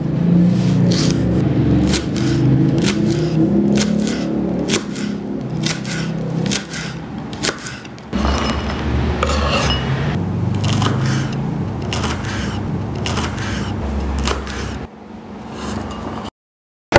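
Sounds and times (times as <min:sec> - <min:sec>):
knife chopping on wooden board: 0:00.9 - 0:01.2, 0:01.8 - 0:08.0, 0:10.6 - 0:14.8.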